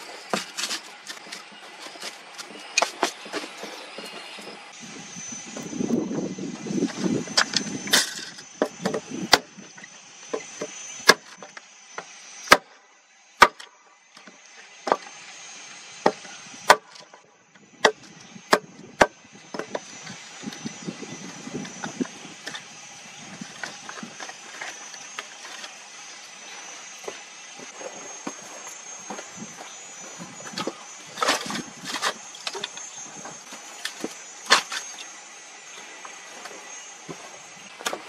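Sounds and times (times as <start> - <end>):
axe chopping wood: 11.0 - 11.3, 12.4 - 12.7, 13.4 - 13.7, 16.0 - 17.0, 17.8 - 19.8.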